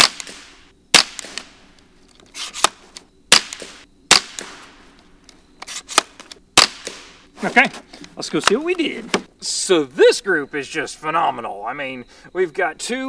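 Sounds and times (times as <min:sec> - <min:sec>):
rifle shots: 0:00.0 - 0:01.6, 0:02.6 - 0:04.8, 0:05.9 - 0:07.3.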